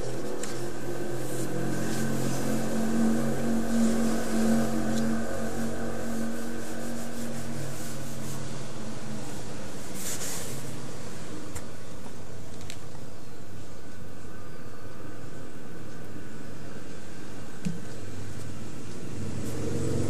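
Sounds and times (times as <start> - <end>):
cotton ball scrubbing paper: 0.0 - 10.8
steady low hum: 0.0 - 20.0.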